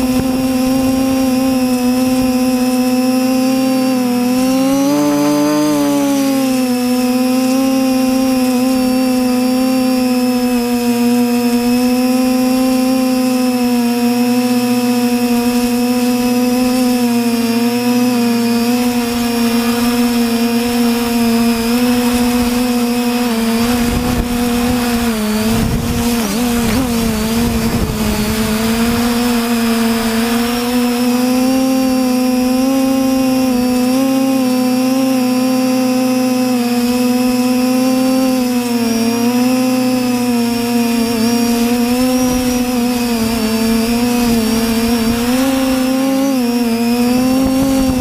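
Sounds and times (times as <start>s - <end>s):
drone propellers whining: 0.0s - 48.0s
rough rushing noise: 14.6s - 33.1s.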